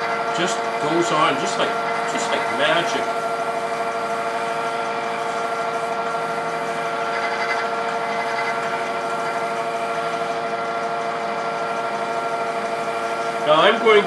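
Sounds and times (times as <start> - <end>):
wood lathe motor hum: 0.0 - 14.0.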